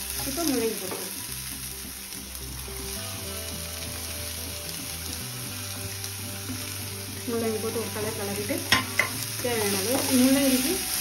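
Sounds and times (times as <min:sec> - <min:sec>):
frying pan sizzling: 0:00.0 - 0:11.0
soft background music: 0:00.0 - 0:11.0.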